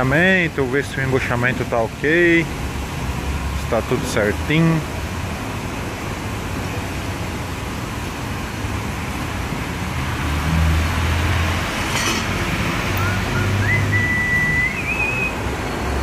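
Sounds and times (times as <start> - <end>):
traffic rumble: 0.0 - 16.0
whistle-like tone: 13.0 - 15.4.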